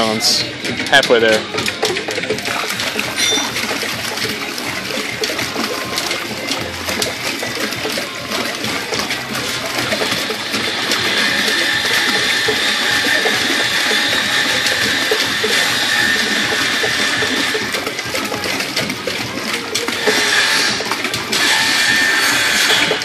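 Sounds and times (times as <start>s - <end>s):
water pouring into plastic tub: 0.0s - 23.0s.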